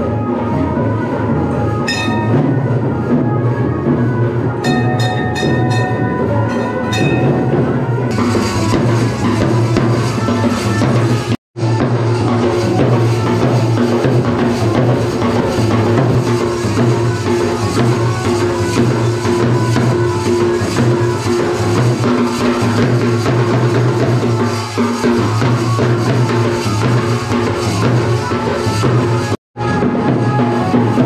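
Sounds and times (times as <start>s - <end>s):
steady pitched melody: 0.0s - 11.3s
drums beaten rapidly with sticks: 0.0s - 31.0s.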